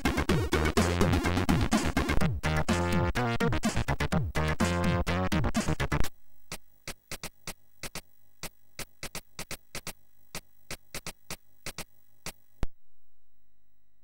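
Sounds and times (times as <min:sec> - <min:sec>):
chiptune demo music: 0:00.0 - 0:06.1
sharp clicks: 0:06.5 - 0:12.4.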